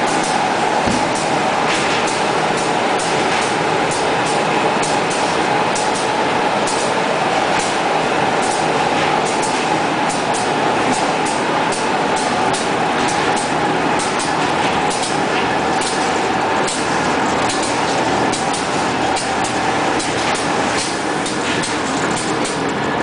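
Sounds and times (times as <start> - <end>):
printing machine running: 0.0 - 23.0
sharp mechanical ticks: 3.9 - 6.9.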